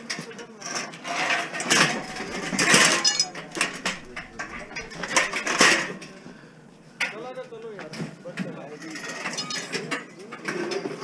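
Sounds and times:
scraping rushes: 1.5 - 7.0
metal bed frame rattling: 1.6 - 6.7
short metallic ring: 1.8 - 6.3.

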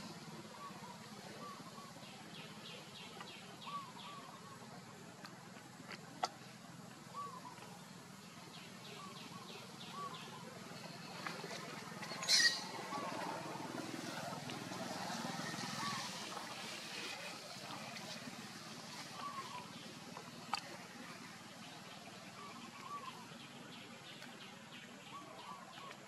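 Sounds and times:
animal chirping calls: 12.2 - 13.1.

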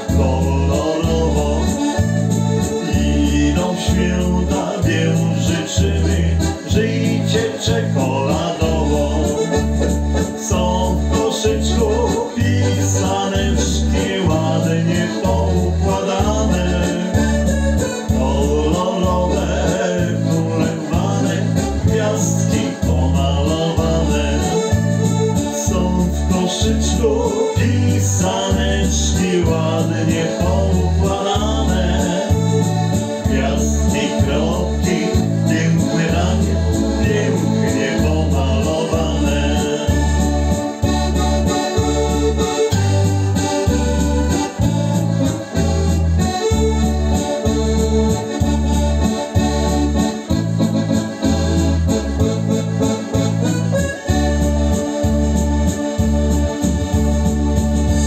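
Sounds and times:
electronic keyboard playing: 0.0 - 58.0.

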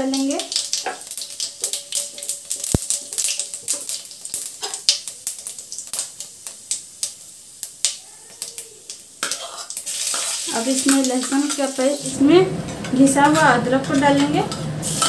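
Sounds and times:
wooden spatula stirring: 0.0 - 6.5
seeds crackling in hot oil: 0.0 - 15.0.

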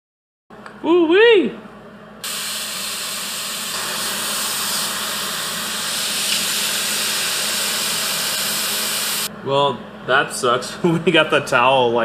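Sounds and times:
water hissing into steam on hot steel: 2.2 - 9.3.

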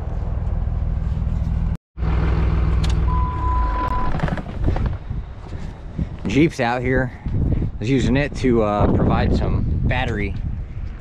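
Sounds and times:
tractor engine running: 0.0 - 6.1
steady beep: 3.1 - 4.1.

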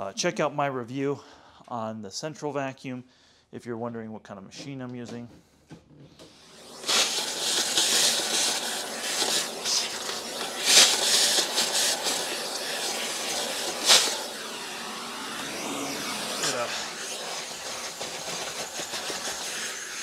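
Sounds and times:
vacuum hose sucking: 6.2 - 20.0.

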